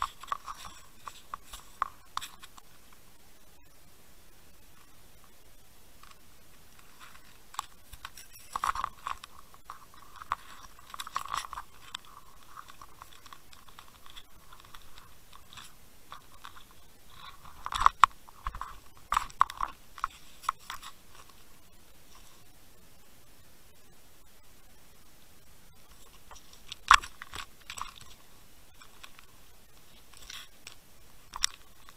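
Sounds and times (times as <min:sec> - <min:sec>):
crunching scrapes: 0:00.0 - 0:02.7, 0:06.0 - 0:21.5.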